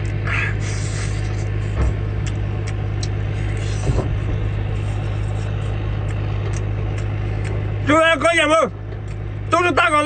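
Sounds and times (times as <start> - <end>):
low engine hum: 0.0 - 10.0
low thumps: 1.7 - 2.3, 3.8 - 4.8
chewing clicks: 2.2 - 3.2, 6.0 - 7.6.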